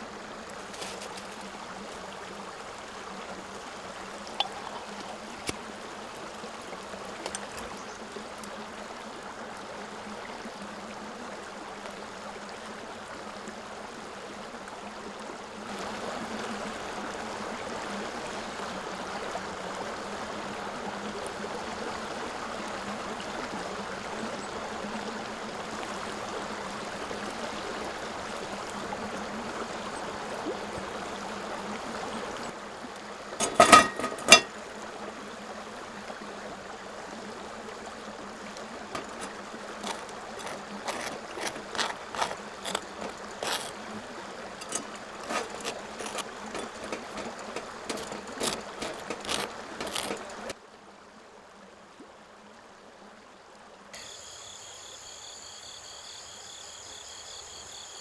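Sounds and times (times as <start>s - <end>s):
hot water pouring onto coffee grounds: 4.0s - 6.0s, 38.8s - 43.9s, 44.6s - 50.6s
knife scraping butter on toast: 39.0s - 43.8s, 44.6s - 50.5s.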